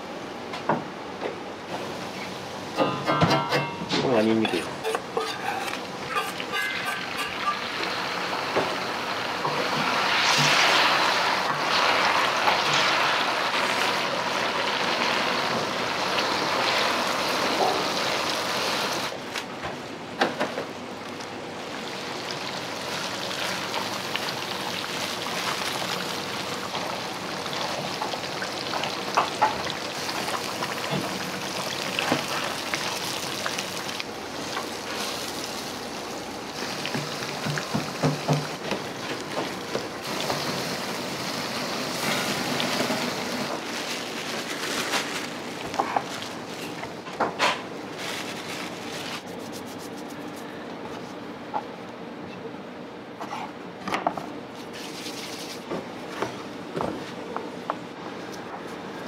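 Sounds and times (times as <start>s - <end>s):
hot oil sizzling in a wok: 5.1s - 19.2s, 21.8s - 39.0s, 40.0s - 43.6s.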